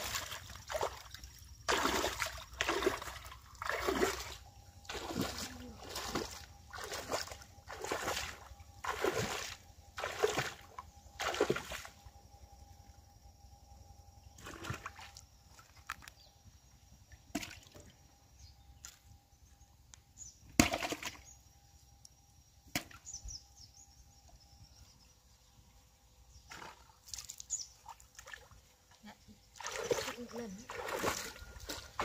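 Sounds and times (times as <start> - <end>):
water splashing and sloshing: 0.0 - 13.0, 14.3 - 16.2, 17.1 - 18.1, 20.6 - 21.3, 26.4 - 32.0.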